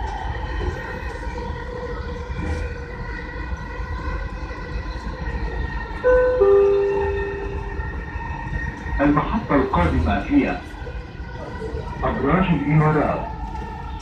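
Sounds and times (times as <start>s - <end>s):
train rumble: 0.0s - 14.0s
onboard chime note: 6.1s - 8.0s.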